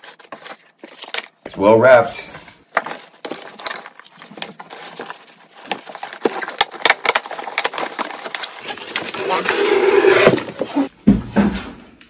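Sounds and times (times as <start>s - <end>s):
plastic wrap crinkling: 0.0s - 1.5s, 2.5s - 9.6s.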